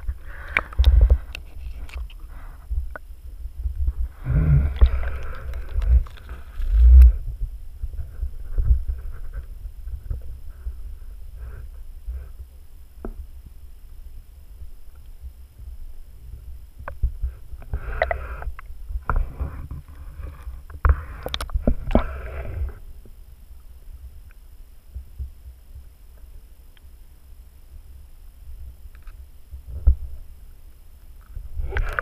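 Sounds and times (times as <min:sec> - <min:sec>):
underwater rumble: 0:00.0 - 0:23.2.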